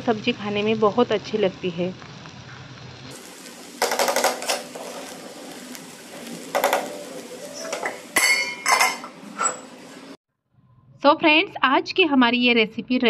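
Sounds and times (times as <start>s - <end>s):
metal spoon scraping a pan: 7.6s - 9.8s.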